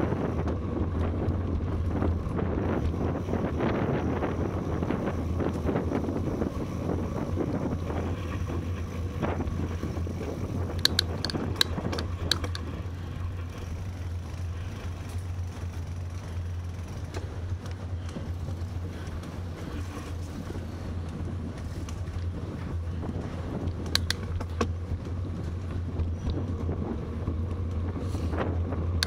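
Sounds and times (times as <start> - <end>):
bicycle rumbling on pavement: 0.0 - 29.0
sharp clicks: 10.7 - 12.7, 23.6 - 24.7.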